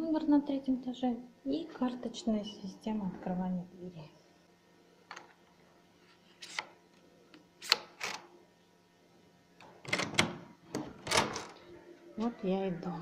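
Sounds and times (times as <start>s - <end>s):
door lock clicks and rattles: 9.8s - 11.5s.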